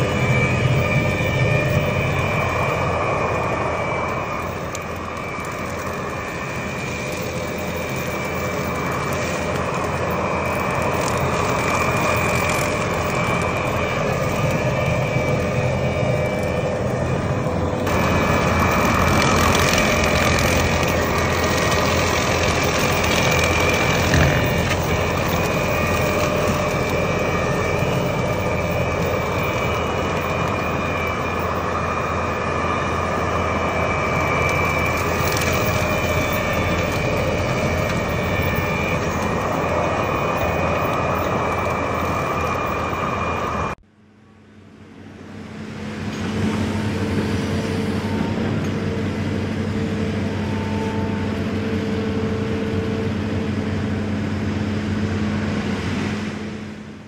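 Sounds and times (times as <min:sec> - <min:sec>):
brush cutter engine and blade: 0:00.0 - 0:42.9
high whine: 0:00.0 - 0:57.0
steady drone with low hum: 0:00.0 - 0:57.0.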